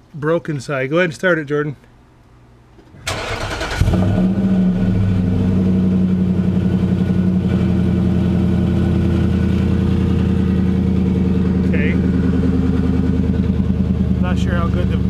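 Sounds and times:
engine starter cranking: 0:03.0 - 0:04.3
engine idling: 0:03.0 - 0:15.0.

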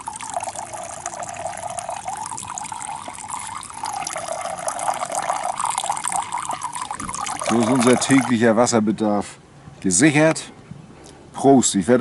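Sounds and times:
water splashing into plastic jug: 0:00.0 - 0:08.4.

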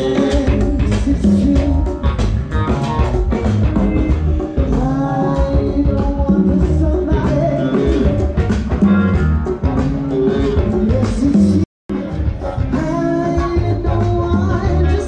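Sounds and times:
person singing: 0:00.0 - 0:02.8, 0:03.8 - 0:08.9, 0:10.1 - 0:15.0
drums: 0:00.0 - 0:15.0
guitar: 0:00.0 - 0:15.0.

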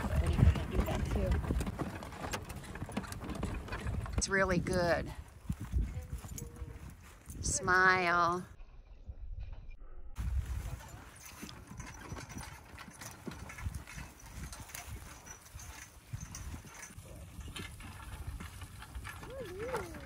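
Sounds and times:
horse hooves clopping on grass: 0:00.0 - 0:08.4, 0:10.2 - 0:20.0
wind on microphone: 0:03.8 - 0:12.6.

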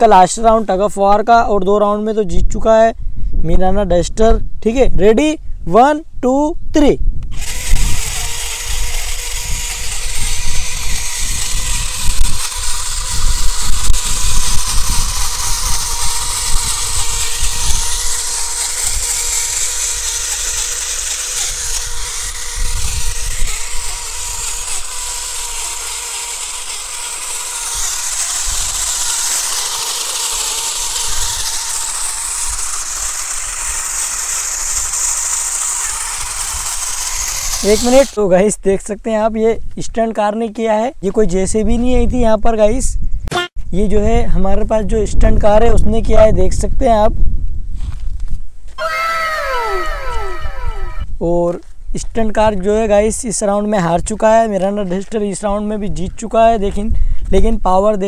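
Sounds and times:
toy car electric motors whining: 0:07.3 - 0:38.2, 0:48.8 - 0:51.1.

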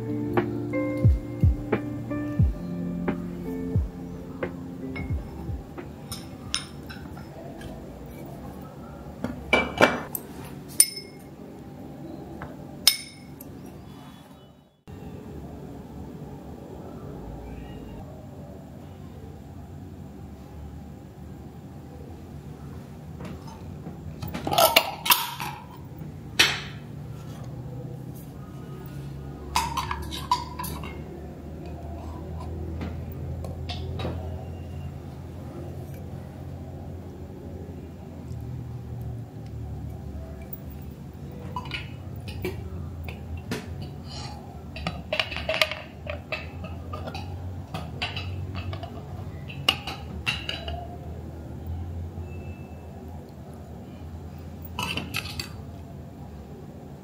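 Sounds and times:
metal clinking on glass: 0:10.8 - 0:11.3, 0:12.9 - 0:13.5
metal scoop clinking on glass cups: 0:29.5 - 0:31.2.

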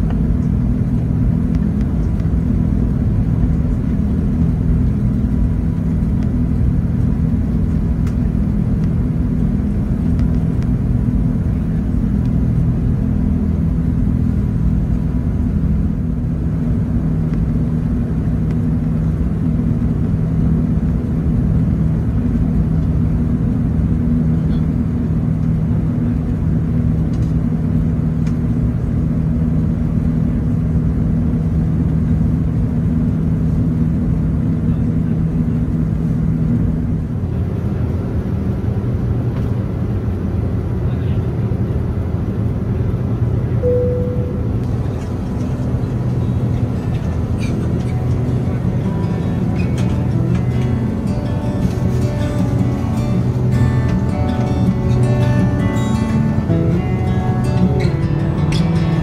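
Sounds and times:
jet airliner cabin rumble: 0:00.0 - 0:59.0
faint high whine: 0:43.6 - 0:59.0.

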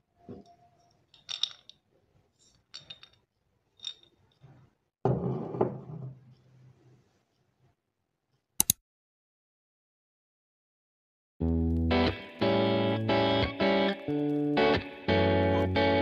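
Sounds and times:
tableware clinking: 0:03.8 - 0:04.2.

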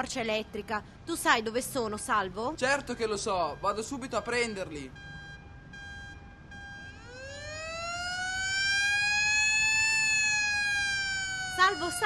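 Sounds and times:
siren winding up: 0:05.0 - 0:12.0.

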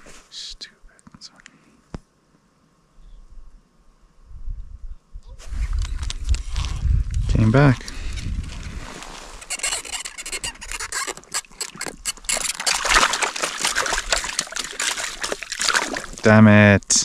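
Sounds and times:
crackling and clicks: 0:05.8 - 0:16.3
water and slush splashing: 0:08.6 - 0:16.4.

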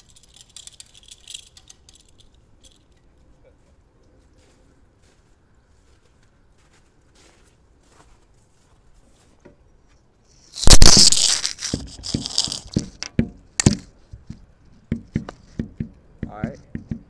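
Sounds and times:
sharp crunches: 0:10.5 - 0:13.0.

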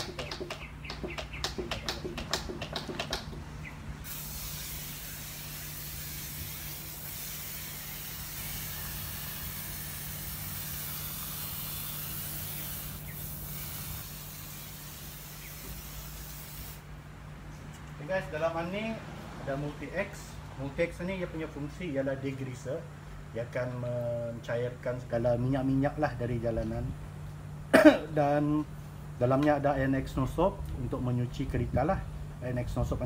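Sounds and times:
sprayer pump strokes: 0:04.0 - 0:16.8
hiss of foam spraying: 0:04.0 - 0:16.9.

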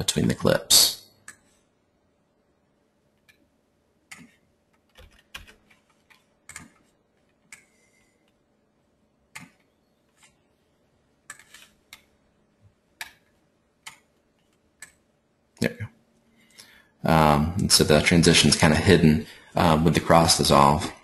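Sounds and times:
faint steady hum: 0:00.0 - 0:21.0
mouse and keyboard clicks: 0:04.1 - 0:07.7, 0:09.3 - 0:10.4, 0:11.2 - 0:12.1.

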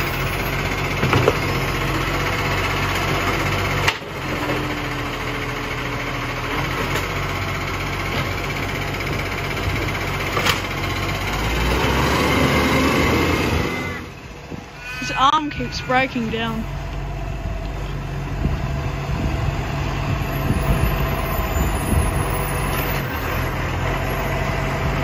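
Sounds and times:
garbage truck engine running: 0:00.0 - 0:14.8, 0:15.8 - 0:25.0
hydraulic whine: 0:11.4 - 0:19.3.

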